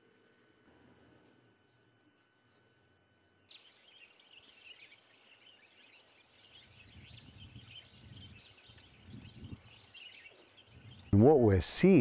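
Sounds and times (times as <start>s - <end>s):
small birds chirping: 1.6s - 12.0s
low wind rumble: 6.6s - 10.0s, 10.6s - 12.0s.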